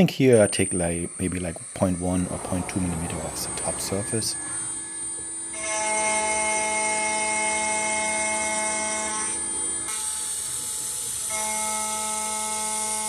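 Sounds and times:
milling spindle whine: 0.0 - 13.0.

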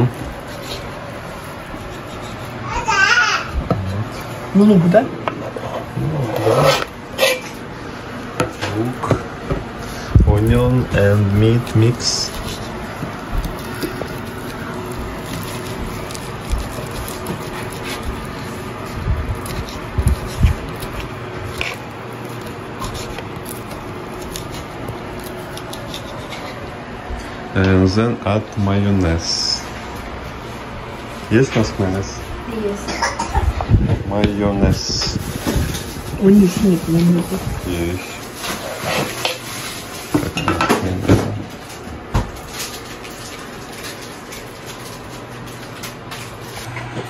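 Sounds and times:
knife cutting on wooden board: 19.3 - 26.6.

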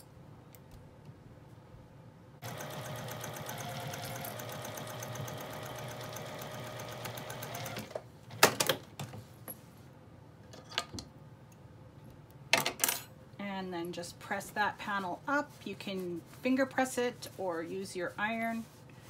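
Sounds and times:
sewing machine stitching: 2.4 - 8.0.

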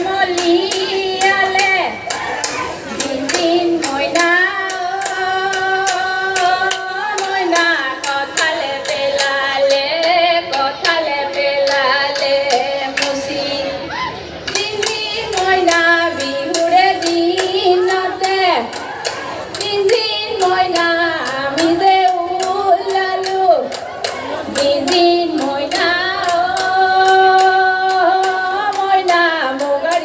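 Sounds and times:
women singing folk song: 0.0 - 30.0
sharp hand claps: 14.5 - 30.0.

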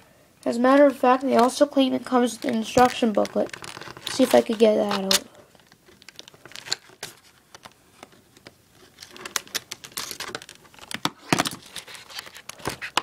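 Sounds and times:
packaging box crinkling: 1.3 - 13.0.

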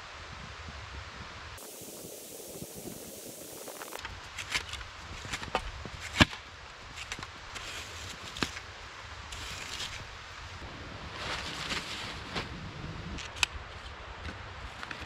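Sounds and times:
footsteps crunching in snow: 1.6 - 6.3
shovel scraping snow: 6.9 - 8.6.

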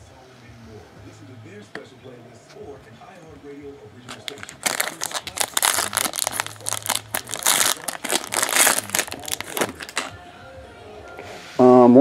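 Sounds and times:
foil wrapper crinkling: 4.1 - 10.2.

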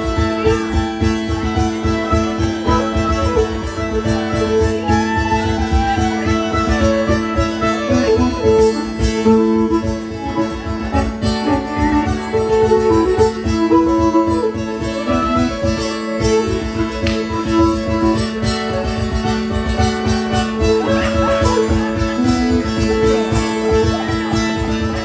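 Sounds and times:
fiddle bowing melody: 0.0 - 25.0
mountain dulcimer strummed: 0.0 - 25.0.

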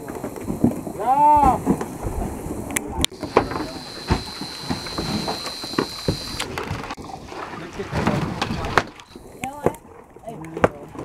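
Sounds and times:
thin high whine: 0.0 - 6.6, 8.9 - 9.6
steady noisy background: 0.0 - 7.0
knocks and thumps: 3.2 - 7.2.

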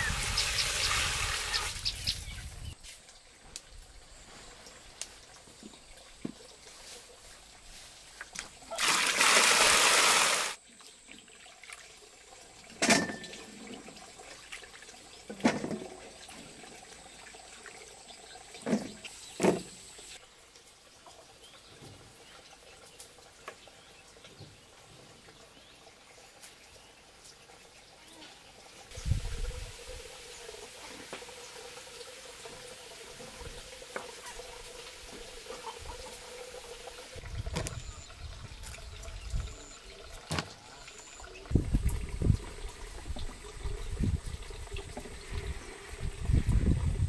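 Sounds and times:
water gushing out: 0.0 - 2.6, 8.6 - 10.6, 36.0 - 47.0.

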